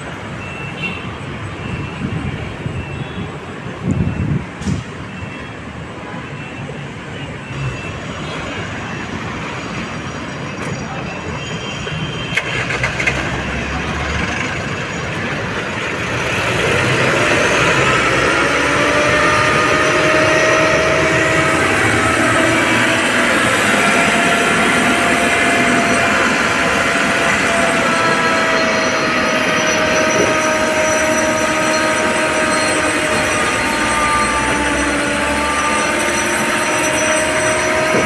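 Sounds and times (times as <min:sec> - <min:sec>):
tow truck engine running: 0:12.0 - 0:38.0
hydraulic whine rising in pitch: 0:15.8 - 0:38.0.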